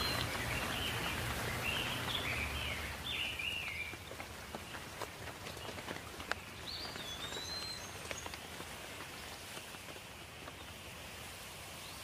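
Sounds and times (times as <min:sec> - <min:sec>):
bird chirps: 0:00.0 - 0:04.8, 0:05.5 - 0:08.6
steady outdoor hiss: 0:00.0 - 0:12.0.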